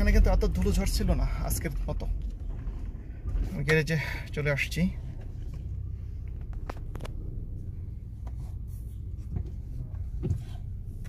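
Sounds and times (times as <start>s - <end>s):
car engine idling: 0.0s - 11.0s
light clicks and rubbing: 5.1s - 7.3s, 8.1s - 11.0s.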